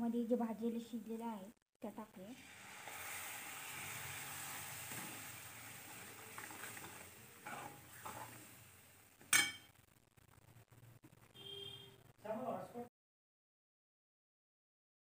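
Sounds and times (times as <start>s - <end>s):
spices sizzling in a pan: 2.1s - 9.8s
ladle scraping a pan: 6.3s - 8.5s.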